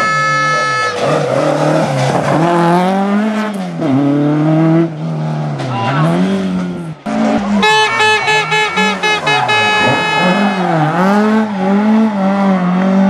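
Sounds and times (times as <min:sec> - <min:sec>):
car horn blasts: 0:00.0 - 0:01.0, 0:07.5 - 0:11.3
rally car engine revving: 0:00.5 - 0:13.0.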